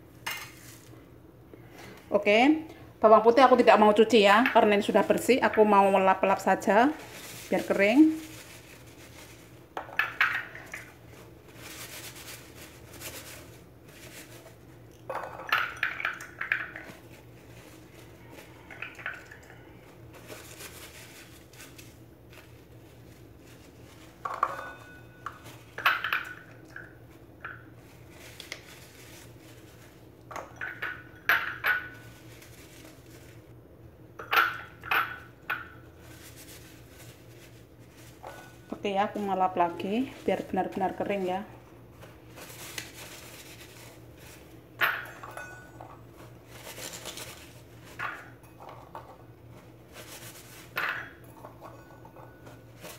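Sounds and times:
garlic cloves clinking in bowls: 3.7s - 8.5s, 9.7s - 11.0s, 14.9s - 17.7s, 24.2s - 29.0s, 29.8s - 32.7s, 34.1s - 36.0s, 42.9s - 46.3s, 50.4s - 52.9s.

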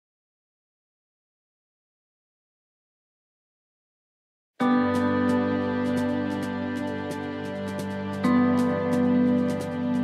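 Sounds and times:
soft instrumental music: 4.6s - 10.0s.

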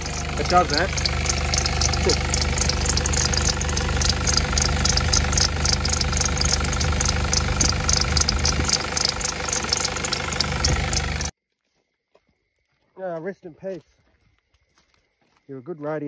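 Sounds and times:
engine idling: 0.0s - 11.3s
light ticking: 0.0s - 11.3s.

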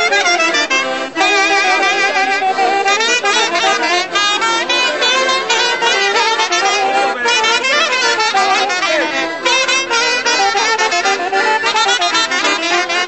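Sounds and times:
folk orchestra dance tune: 0.0s - 13.0s.

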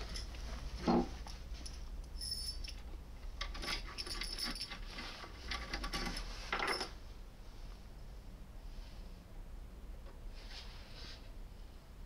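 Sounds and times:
metal keys clinking: 1.7s - 4.9s.

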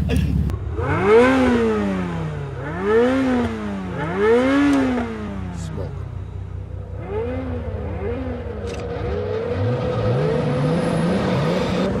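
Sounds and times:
sports car engines revving: 0.0s - 12.0s
car accelerating through gears: 7.0s - 12.0s.

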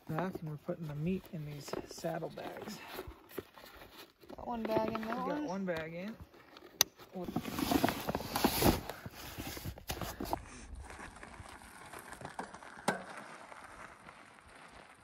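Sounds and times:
bike rolling on dirt: 7.2s - 15.0s.

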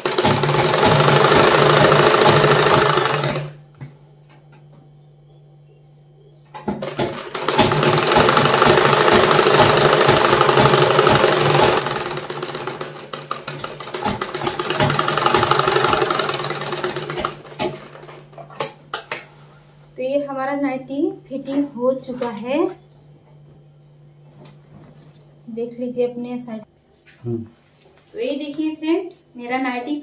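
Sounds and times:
sewing machine stitching: 0.0s - 3.6s, 6.8s - 18.2s.

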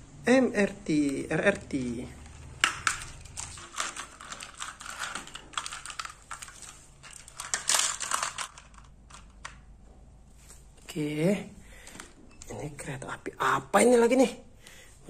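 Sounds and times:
plastic toy train cars clicking: 2.2s - 9.6s.

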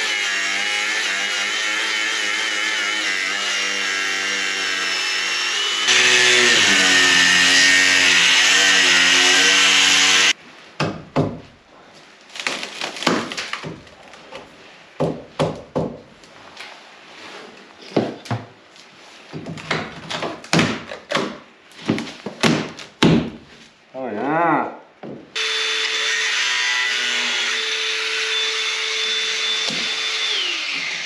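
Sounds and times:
angle grinder cutting fiberglass: 0.0s - 10.4s, 25.4s - 31.0s.

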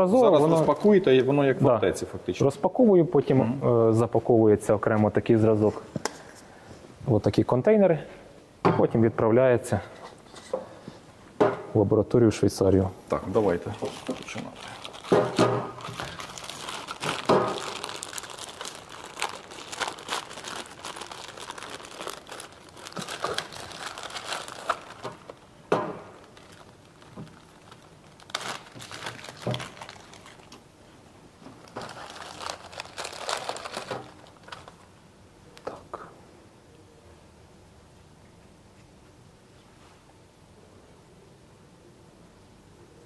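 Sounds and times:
plastic bags crinkling: 13.4s - 30.6s, 31.5s - 34.9s
plastic tearing: 13.8s - 25.5s, 26.1s - 30.6s, 31.6s - 34.9s.

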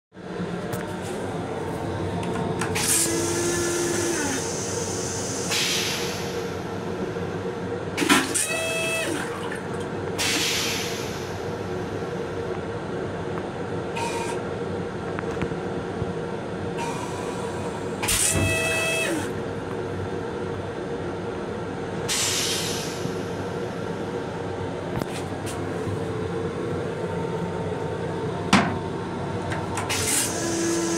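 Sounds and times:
electric railcar hum: 0.2s - 30.9s.

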